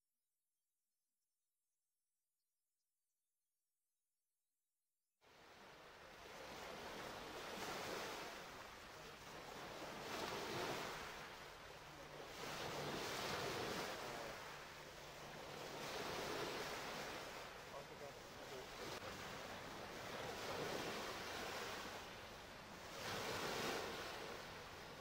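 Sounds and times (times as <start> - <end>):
small waves washing in: 5.2 - 25.0.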